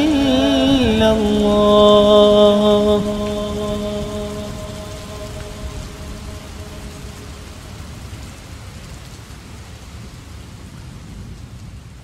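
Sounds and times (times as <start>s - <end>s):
call to prayer: 0.0s - 7.8s
heavy rain falling: 0.0s - 12.0s.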